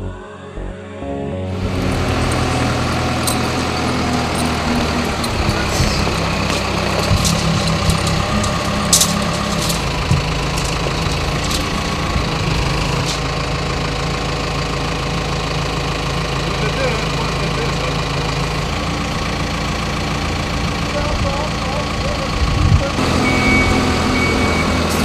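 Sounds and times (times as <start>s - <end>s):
diesel engine idling: 1.5s - 25.0s
metallic chain clinks: 1.6s - 13.3s.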